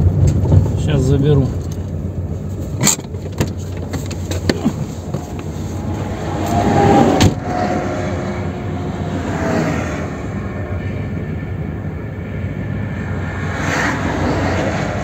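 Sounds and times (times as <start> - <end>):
car engine and road hum: 0.0 - 15.0
truck passing by: 3.9 - 15.0.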